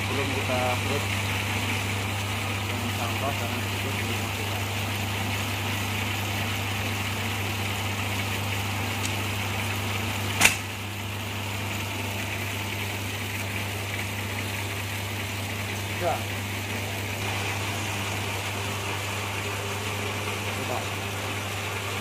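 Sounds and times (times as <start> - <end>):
machine motor humming: 0.0 - 22.0
sharp clack of bamboo strips: 10.4 - 10.7.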